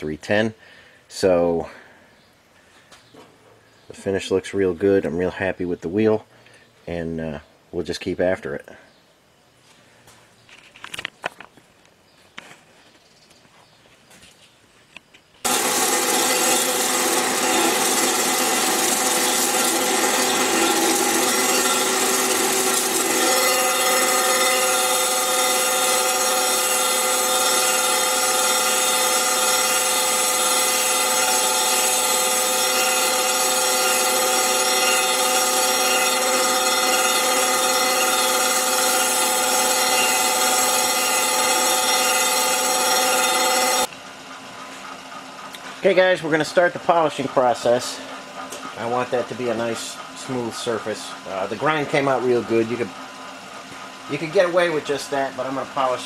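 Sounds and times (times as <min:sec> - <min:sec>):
grinding wheel on metal: 0:15.4 - 0:43.9, 0:45.6 - 0:56.0.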